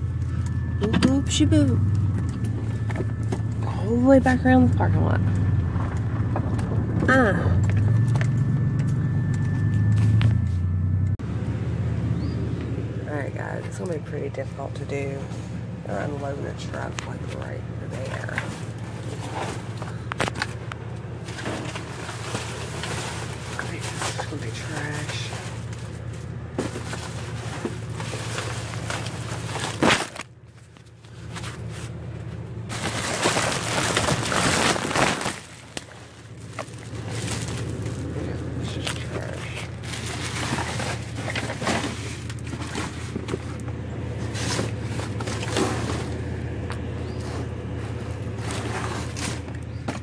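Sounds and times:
car cabin hum: 0.0 - 50.0
loud rustling: 21.2 - 46.4.

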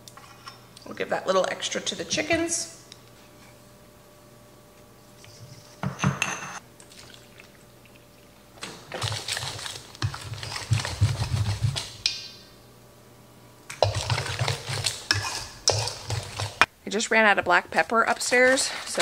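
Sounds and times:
utensil stirring in metal bowl: 8.9 - 12.1, 13.7 - 16.7, 18.0 - 19.0
utensil scraping and tapping metal: 13.7 - 16.7.

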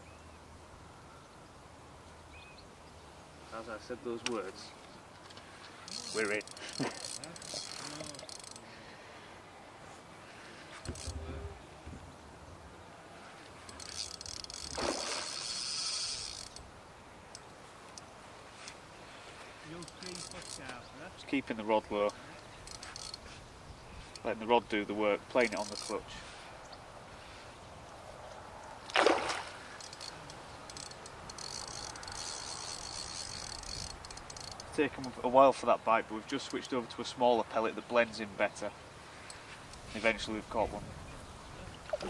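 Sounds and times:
fishing reel clutch clicking buzz: 5.9 - 8.6, 13.7 - 16.7, 19.8 - 20.8, 22.6 - 23.2, 25.5 - 26.0, 29.8 - 34.8
fish splashing: 13.8 - 16.1, 28.9 - 30.1.

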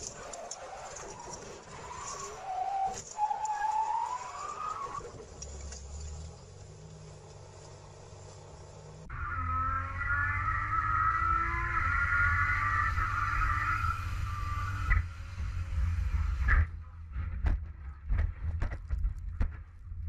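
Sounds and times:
race car engine at high revs: 4.0 - 16.7
rising high tone: 9.0 - 15.3.

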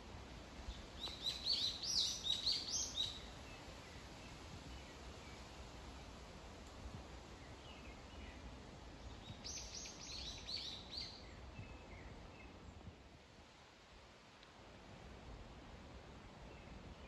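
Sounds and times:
faint background noise: 0.0 - 17.0
songbird singing: 0.6 - 6.1, 7.2 - 13.0, 16.4 - 17.0
soft bird chirps: 0.7 - 5.5, 7.4 - 12.6.

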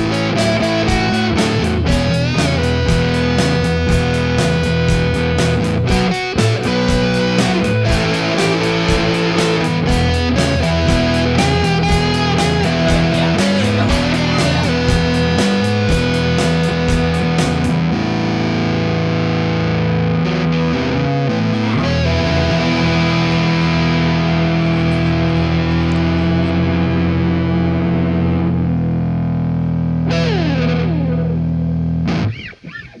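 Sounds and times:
rock music on distorted electric guitar: 0.0 - 33.0.

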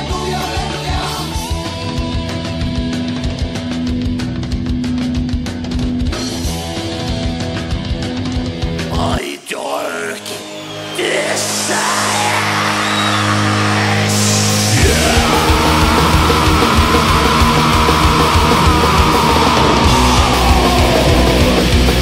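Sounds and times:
heavy metal band playing: 0.0 - 9.2, 10.2 - 22.0
fast dense drumming: 14.7 - 22.0.

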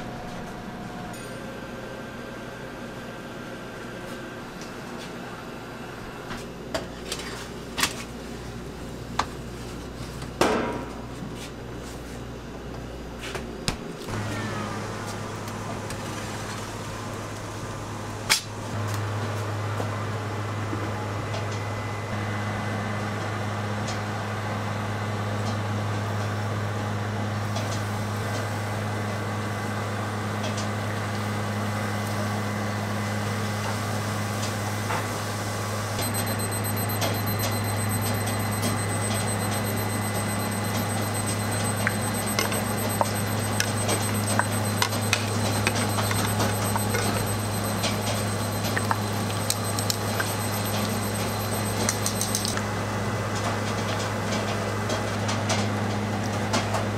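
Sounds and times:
low machine hum: 35.4 - 53.3.

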